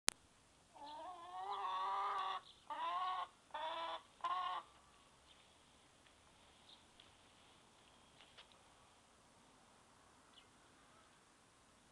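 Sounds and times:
hen calling: 0:00.7 - 0:04.8.

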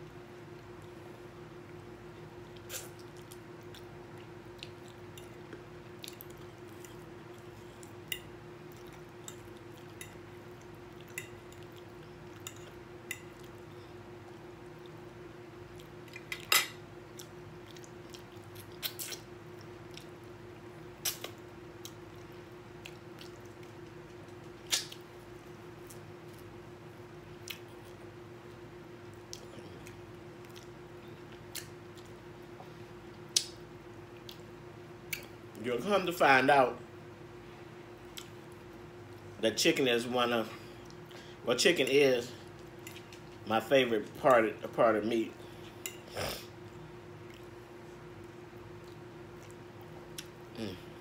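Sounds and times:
steady background hum: 0:00.0 - 0:51.0
wet mouth clicks and smacks: 0:21.0 - 0:21.4, 0:24.7 - 0:25.0.

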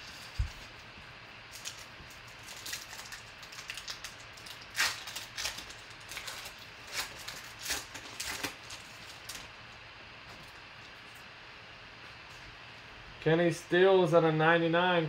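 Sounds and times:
foil wrapper crinkling and tearing: 0:01.5 - 0:09.6.

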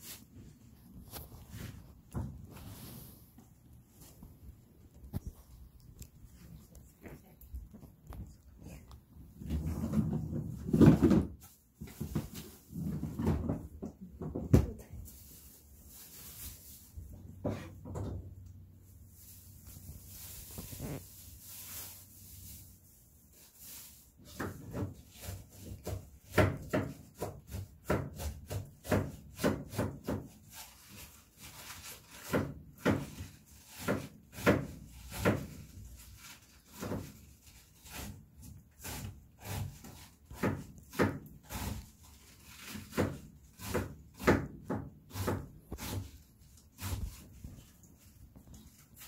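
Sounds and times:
puppies chewing and gnawing: 0:01.0 - 0:09.4.

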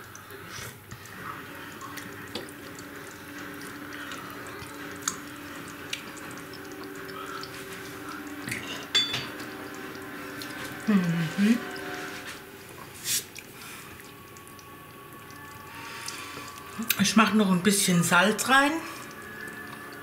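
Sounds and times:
low steady hum: 0:00.0 - 0:20.0
stew bubbling: 0:00.0 - 0:20.0
metal spoon clinking: 0:08.9 - 0:09.3.

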